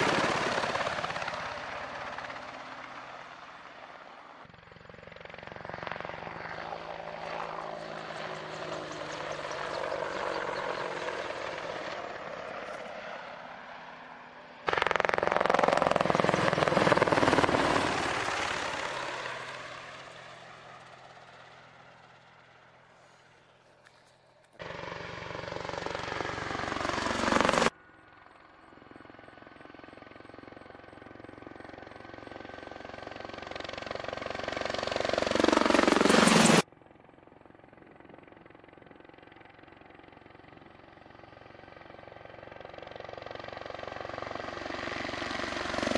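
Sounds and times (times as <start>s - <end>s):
helicopter rotor blades beating: 0.0s - 22.6s, 24.6s - 45.9s
turbine engine whine: 35.0s - 36.7s.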